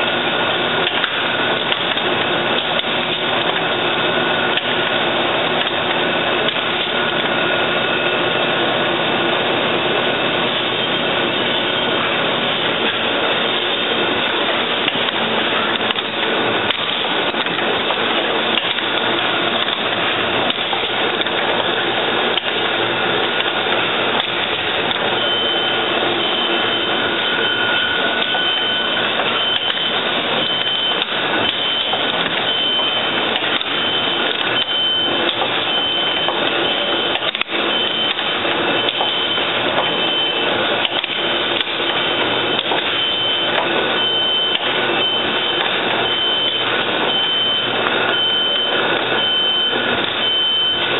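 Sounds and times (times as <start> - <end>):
machine clattering ticks: 0.8 - 3.7, 13.6 - 25.0, 33.2 - 35.6, 36.2 - 40.0, 40.8 - 43.7
high electronic beeps: 22.7 - 50.9.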